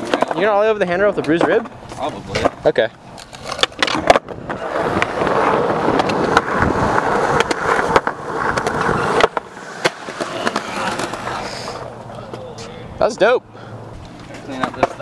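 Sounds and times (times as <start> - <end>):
skateboard clacking on concrete: 0.0 - 12.7, 14.0 - 15.0
skateboard wheels rolling on concrete: 0.0 - 15.0
skateboard ollie pop: 3.2 - 12.4.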